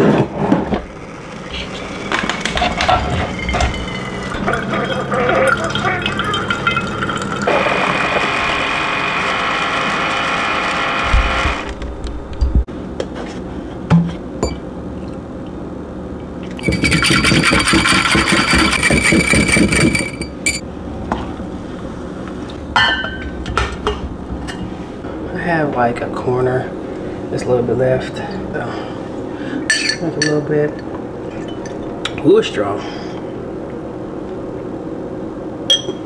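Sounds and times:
coffee maker hissing: 0.4 - 11.6
liquid being poured: 0.9 - 8.0.

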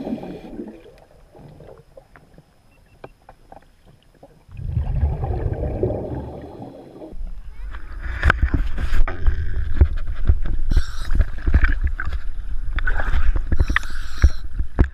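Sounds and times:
regulator bubbles underwater: 0.0 - 2.4, 3.9 - 7.2.

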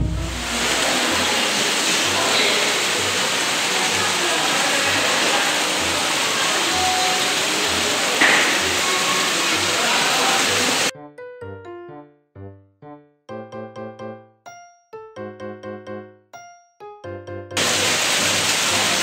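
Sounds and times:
water pouring and churning: 0.2 - 10.9, 17.6 - 19.0.

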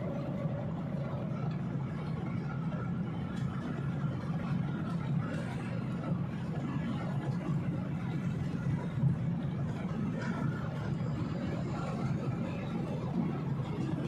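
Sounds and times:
boat engine rumbling: 0.0 - 14.0.

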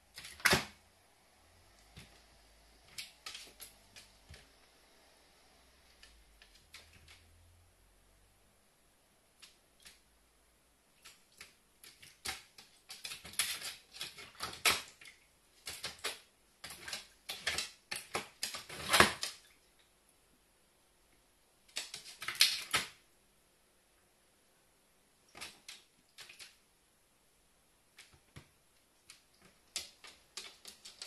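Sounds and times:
crow pecking plastic tray: 29.1 - 31.0.

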